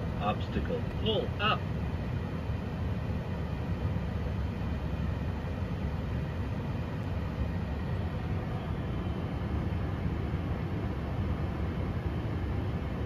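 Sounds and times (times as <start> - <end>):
faint high whine: 0.0 - 13.0
ventilation fans rumbling: 0.0 - 13.0.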